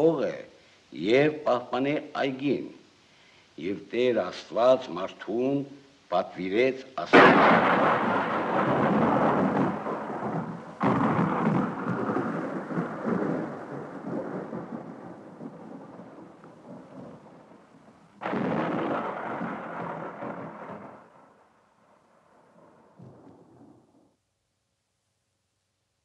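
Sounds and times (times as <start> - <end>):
thunder rumbling: 7.0 - 21.5, 22.2 - 24.0.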